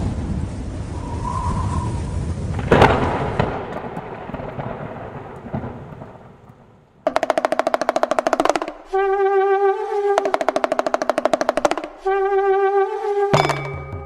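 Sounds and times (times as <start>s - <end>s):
rolling thunder rumble: 0.0s - 7.0s
sharp thunder crack: 0.0s - 7.0s.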